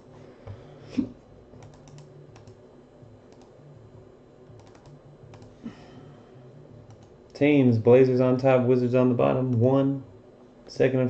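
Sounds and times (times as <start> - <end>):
low hum: 0.0 - 11.0
computer mouse and keyboard clicks: 1.6 - 2.6, 3.3 - 3.5, 4.5 - 5.6, 6.8 - 7.2.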